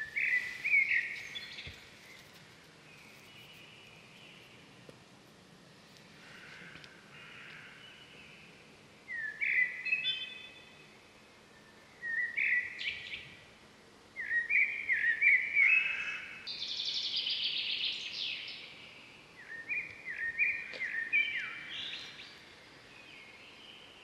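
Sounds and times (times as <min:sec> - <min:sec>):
birds singing: 0:00.0 - 0:04.8, 0:06.3 - 0:13.5, 0:14.2 - 0:24.0.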